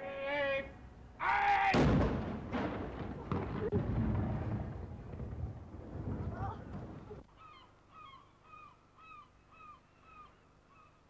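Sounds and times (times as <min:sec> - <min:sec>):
low rumble of cannon shot: 0:01.8 - 0:07.2
bird honking calls: 0:07.3 - 0:11.0.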